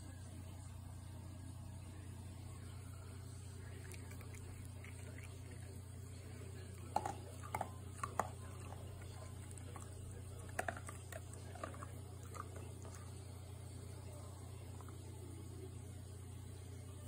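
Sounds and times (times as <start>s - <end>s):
steady low hum: 0.0s - 17.0s
dog mouth and paw clicks: 6.9s - 8.4s.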